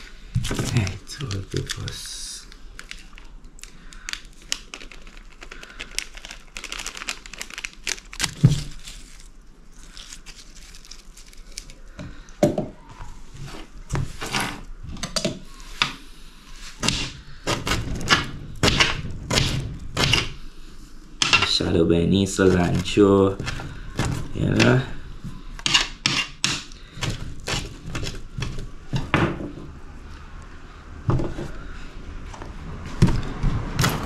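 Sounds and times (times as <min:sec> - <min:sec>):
leaves crinkling and tearing: 0:00.0 - 0:12.0, 0:22.1 - 0:25.0.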